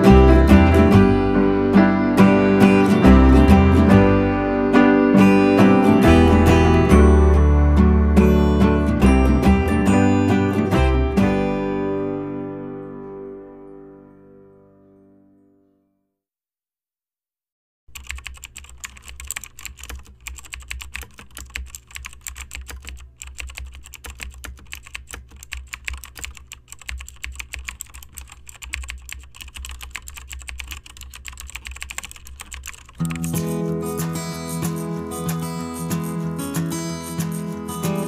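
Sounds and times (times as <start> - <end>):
acoustic guitar music: 0.0 - 15.6, 33.0 - 38.0
laptop keyboard typing: 17.9 - 38.0.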